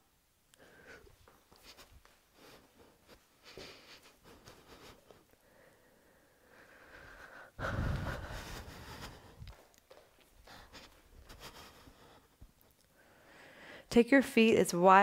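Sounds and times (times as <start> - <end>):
footsteps: 0.9 - 5.2, 7.6 - 12.8.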